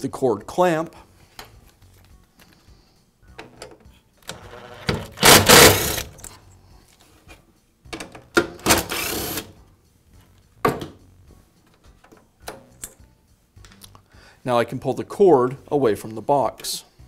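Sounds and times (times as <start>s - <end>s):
cordless driver whirring: 4.3s - 6.1s.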